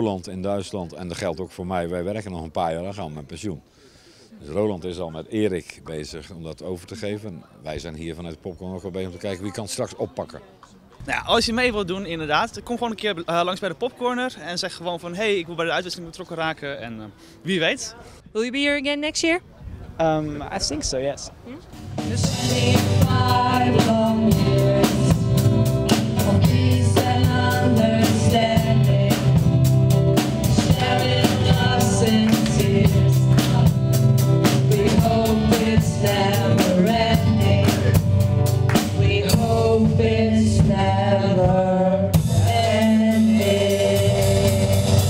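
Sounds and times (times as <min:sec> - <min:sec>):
bass guitar: 0:21.5 - 0:45.0
drum kit beat: 0:21.6 - 0:45.0
women singing: 0:22.3 - 0:29.6, 0:30.4 - 0:38.1, 0:38.8 - 0:45.0
electric guitar: 0:42.1 - 0:45.0.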